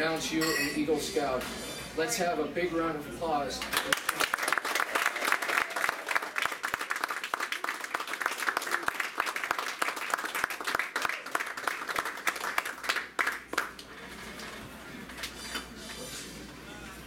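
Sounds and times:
audience applauding: 3.7s - 13.8s.

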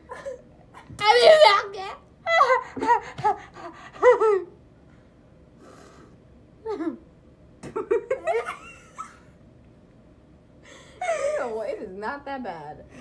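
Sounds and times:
girls laughing: 2.2s - 4.6s, 7.7s - 9.3s.

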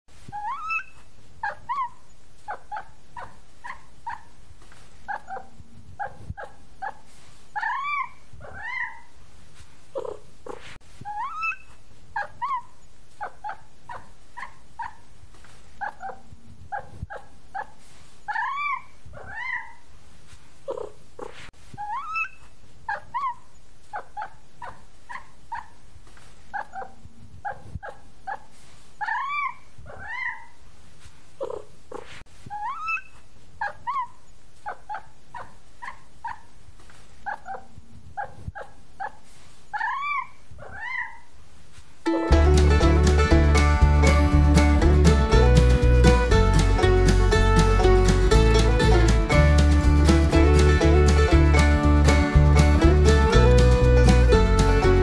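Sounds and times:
cat mewing and chirping: 0.3s - 4.3s, 7.6s - 9.1s, 10.0s - 15.0s, 18.3s - 19.8s, 20.7s - 25.8s, 29.0s - 30.6s, 31.4s - 36.5s, 37.3s - 41.3s.

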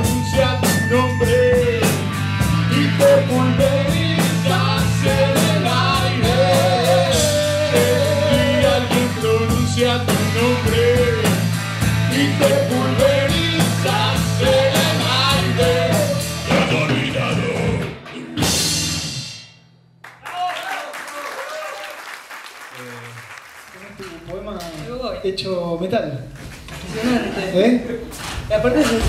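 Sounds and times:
person singing: 0.0s - 11.5s, 12.1s - 18.6s
electric guitar: 0.0s - 19.2s
electric bass: 0.0s - 19.5s
drum kit with cymbal hits: 0.0s - 19.6s.

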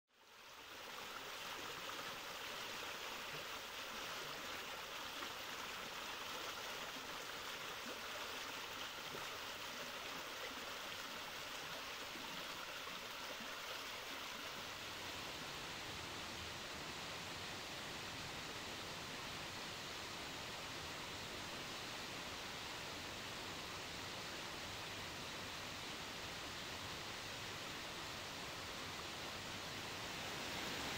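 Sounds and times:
waterfall rushing: 29.7s - 30.9s.

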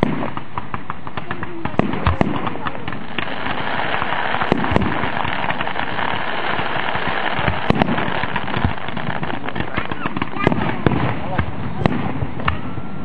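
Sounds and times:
fireworks bangs: 0.0s - 13.0s
fireworks rushing noise: 0.0s - 13.0s.

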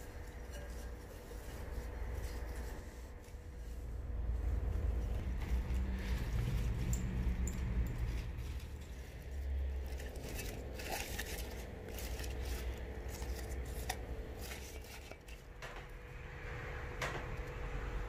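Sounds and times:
plant cuttings rustling in water: 4.6s - 15.4s.

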